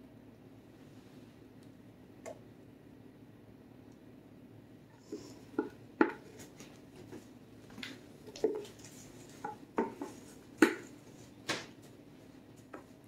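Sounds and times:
utensils knocking on cake pans: 5.6 - 6.3, 9.4 - 10.9.

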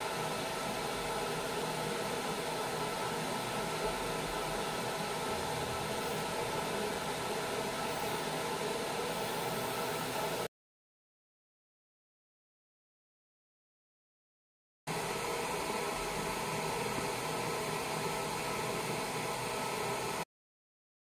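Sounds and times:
laser marking machine hum and hiss: 0.0 - 10.5, 14.9 - 20.2.

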